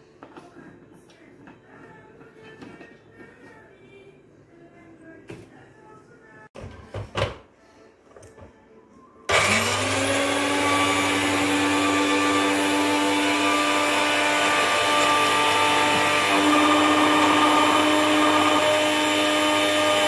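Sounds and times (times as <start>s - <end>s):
electric blender whining: 9.3s - 20.0s.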